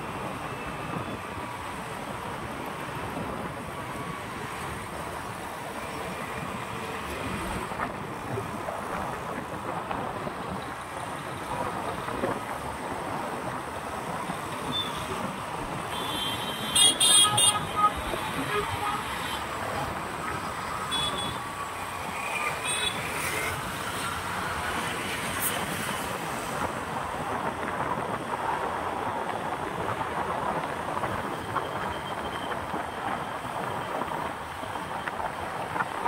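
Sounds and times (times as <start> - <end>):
passing road traffic: 0.0 - 36.0.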